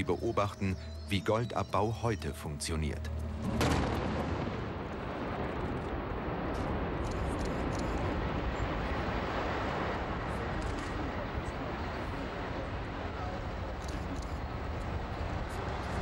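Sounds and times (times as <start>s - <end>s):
heavy rumble: 3.1s - 16.0s
blast bang: 3.4s - 5.5s.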